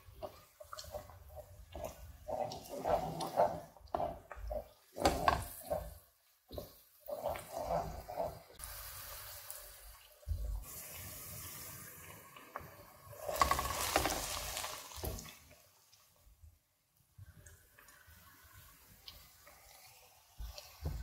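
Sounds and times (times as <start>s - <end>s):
wooden spoon scraping pot: 0.0s - 8.6s, 13.2s - 15.3s
food sizzling in pot: 0.0s - 15.9s
beans tipped into pot: 13.3s - 15.3s.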